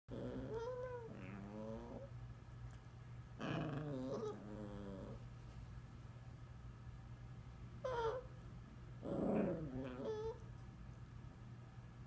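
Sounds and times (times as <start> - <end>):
dog making wavering vocal sounds: 0.1 - 2.1, 3.4 - 5.2, 9.0 - 10.4.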